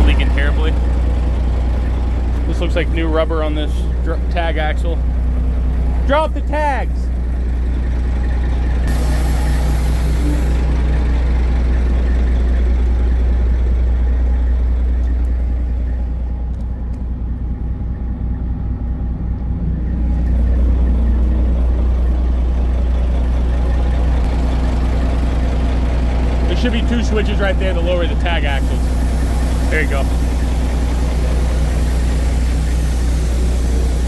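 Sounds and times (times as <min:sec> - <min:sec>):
diesel truck engine idling: 0:00.0 - 0:34.0
short air hiss: 0:08.9 - 0:10.6.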